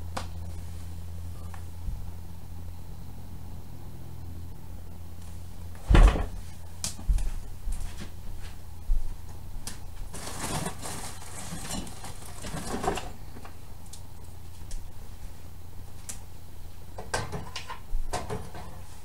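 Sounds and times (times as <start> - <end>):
steady low hum: 0.0 - 19.0
rustling and scraping: 9.8 - 13.4.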